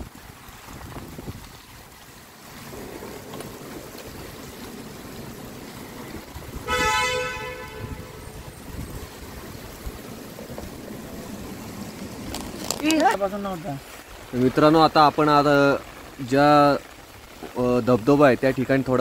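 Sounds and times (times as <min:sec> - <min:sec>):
rain: 0:00.0 - 0:19.0
wind: 0:00.0 - 0:19.0
car horn: 0:06.6 - 0:08.4.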